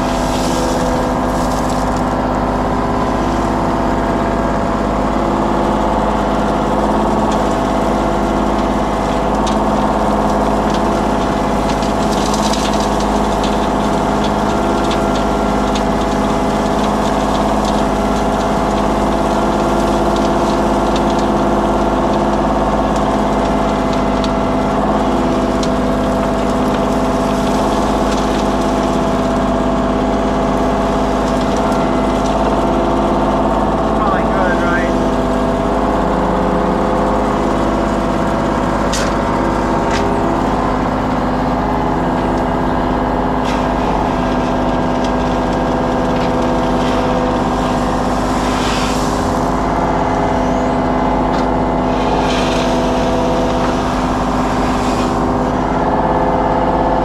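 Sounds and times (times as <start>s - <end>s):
machine engine running: 0.0s - 57.0s.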